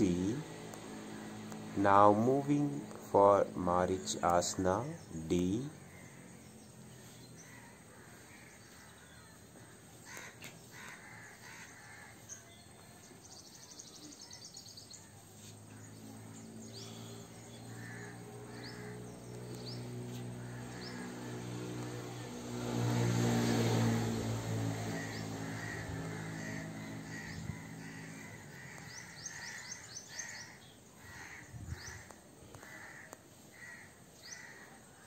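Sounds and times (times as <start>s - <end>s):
low motor hum: 0.0s - 9.9s, 15.0s - 32.9s
small birds chirping: 0.0s - 35.0s
crows cawing: 5.6s - 6.6s, 7.4s - 12.5s, 15.7s - 21.5s, 24.8s - 35.0s.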